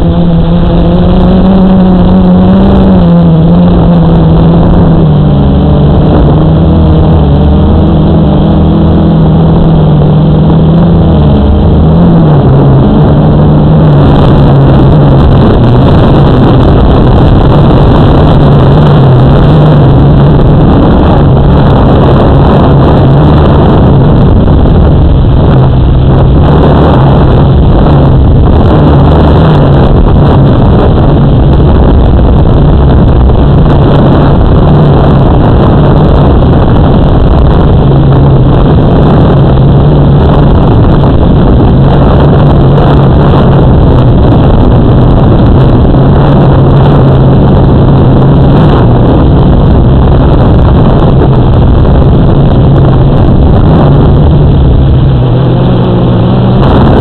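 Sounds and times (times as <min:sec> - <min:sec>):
model aircraft motor drone: 0:00.0 - 0:13.8
wind on microphone: 0:00.0 - 0:57.0.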